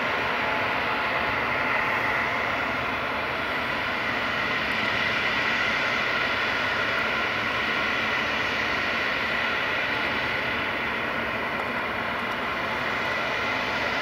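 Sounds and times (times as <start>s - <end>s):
jet engines idling: 0.0s - 14.0s.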